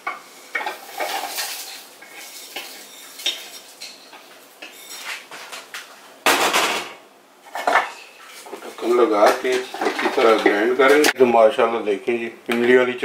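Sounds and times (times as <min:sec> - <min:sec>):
food pieces clattering into bowl: 0:00.6 - 0:04.0.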